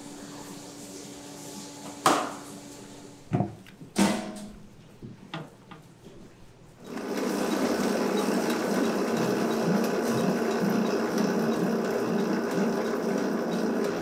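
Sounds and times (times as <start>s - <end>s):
factory machine humming: 6.8s - 14.0s.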